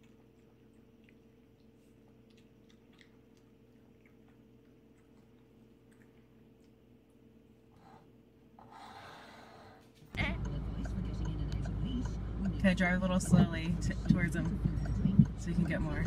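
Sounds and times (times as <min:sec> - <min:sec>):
animals lapping water from a bowl: 0:00.0 - 0:07.3
low steady hum: 0:00.0 - 0:16.0.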